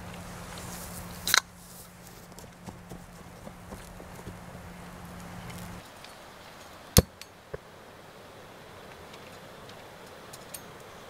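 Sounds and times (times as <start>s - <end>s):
low steady hiss: 0.0s - 11.0s.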